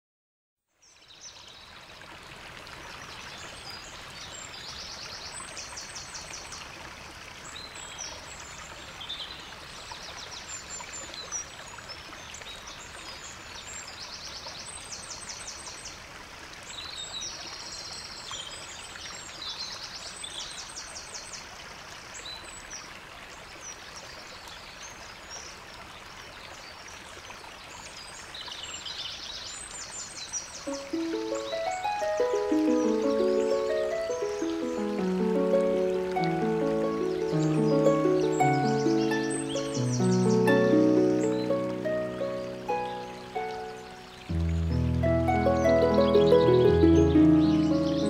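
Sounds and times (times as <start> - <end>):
stream rushing: 30.6 - 48.0
birds chirping and trilling: 30.7 - 48.0.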